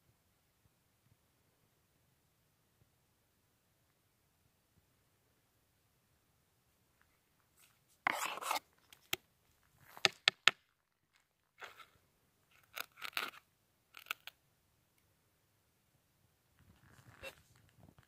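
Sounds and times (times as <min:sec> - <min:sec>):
fingers scraping gravelly soil: 0:08.0 - 0:08.7
clicks of grit and stones: 0:12.5 - 0:14.4.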